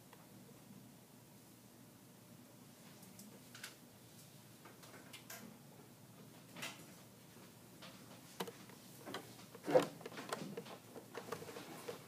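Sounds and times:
light clicks and taps: 0:07.8 - 0:12.0.

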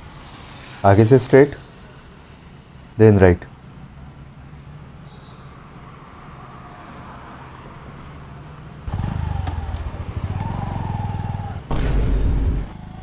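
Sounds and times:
motorcycle engine: 0:08.9 - 0:13.0.

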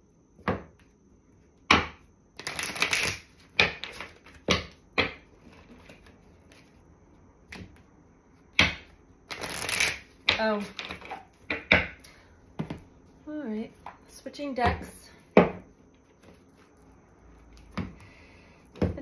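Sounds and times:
cards being shuffled: 0:02.4 - 0:04.4, 0:09.3 - 0:10.1.

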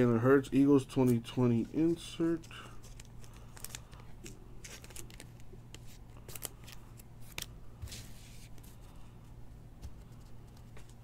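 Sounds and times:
low steady hum: 0:00.0 - 0:11.0
plastic sleeve rustling: 0:01.1 - 0:08.9.

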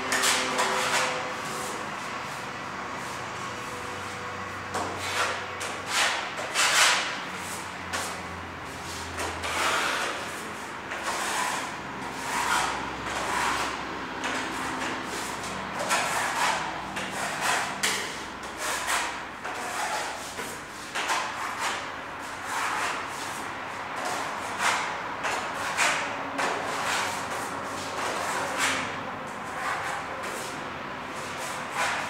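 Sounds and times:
metal spatula scraping filler: 0:08.8 - 0:23.4.

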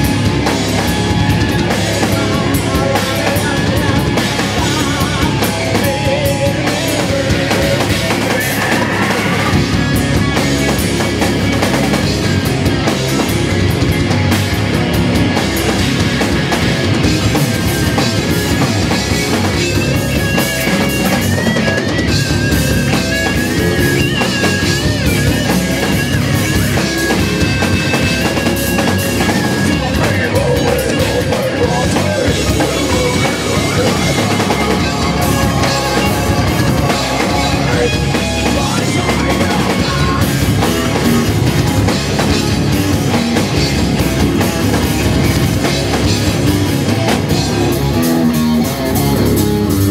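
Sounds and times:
live rock band playing: 0:00.0 - 0:49.9.

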